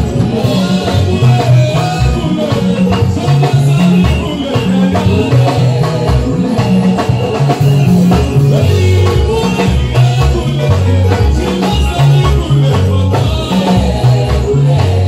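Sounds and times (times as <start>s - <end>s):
drums: 0.0s - 15.0s
electric bass: 0.0s - 15.0s
electric guitar: 0.0s - 15.0s.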